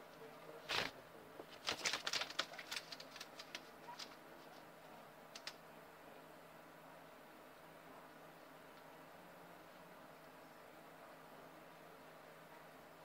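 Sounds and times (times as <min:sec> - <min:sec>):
guinea pig scratching at microphone: 0:00.6 - 0:04.7.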